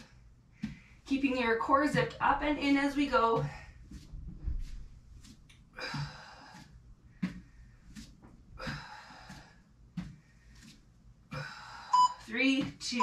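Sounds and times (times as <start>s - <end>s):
soft shoulder taps: 0.6s - 2.4s, 3.0s - 11.4s
woman breathing hard: 5.7s - 12.3s.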